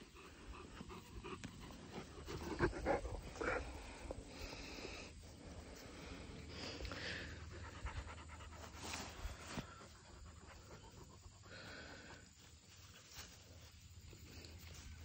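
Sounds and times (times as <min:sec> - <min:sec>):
puppy panting: 0:00.0 - 0:04.2, 0:06.9 - 0:11.8.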